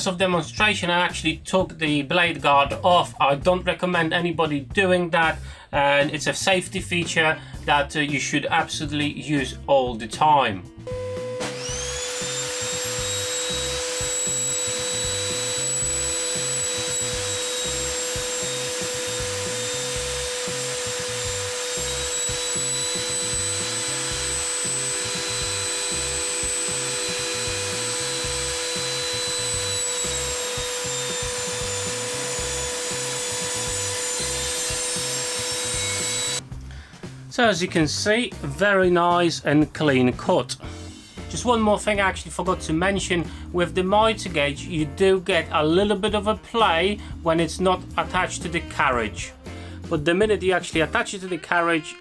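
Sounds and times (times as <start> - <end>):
table saw motor whine: 10.9 - 36.4
saw blade cutting wood: 11.2 - 36.4.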